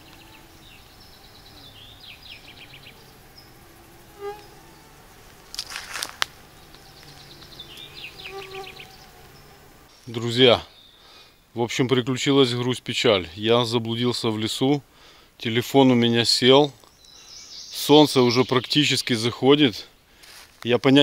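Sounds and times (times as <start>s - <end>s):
songbird trilling: 0.0s - 5.0s, 6.4s - 11.1s, 16.9s - 18.8s
insects buzzing: 0.0s - 11.5s.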